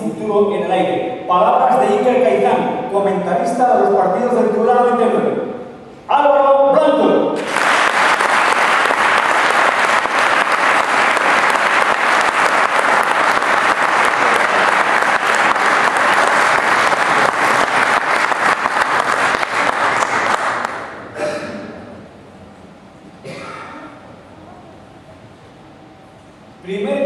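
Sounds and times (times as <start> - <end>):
audience applauding: 7.4 - 21.0.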